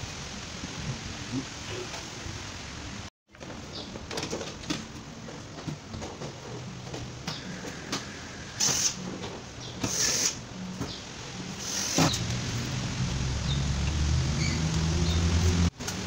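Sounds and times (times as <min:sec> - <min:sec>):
cordless drill driving screws: 0:09.8 - 0:10.4.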